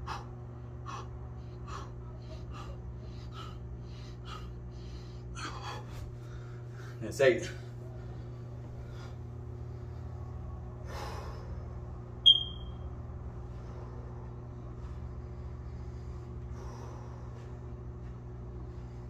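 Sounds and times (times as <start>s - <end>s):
low room hum: 0.0s - 19.0s
short high-pitched chirp: 12.3s - 12.8s.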